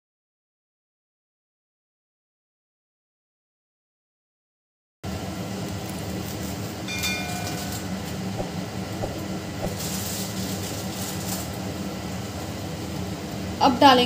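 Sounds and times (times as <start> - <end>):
low rumbling kitchen noise: 5.0 - 14.0
spices frying in a pan: 5.1 - 14.0
high ringing tone: 6.9 - 8.2.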